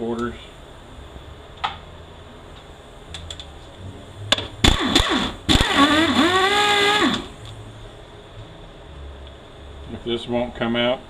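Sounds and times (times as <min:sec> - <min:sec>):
air impact wrench rattling: 0:04.6 - 0:07.4
air tool spinning with whine: 0:04.6 - 0:07.5.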